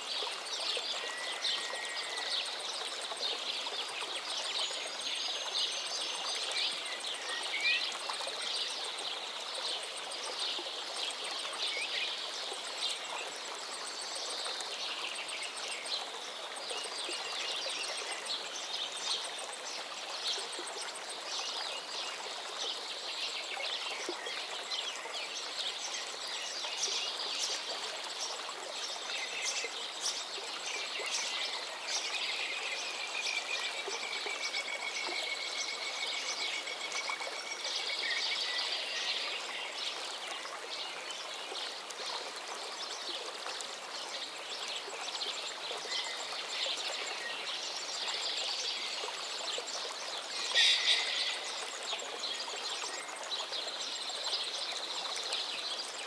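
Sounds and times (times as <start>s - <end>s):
stream water gurgling: 0.0s - 56.0s
short whistled calls: 50.4s - 51.5s
bird chirps: 50.4s - 51.6s.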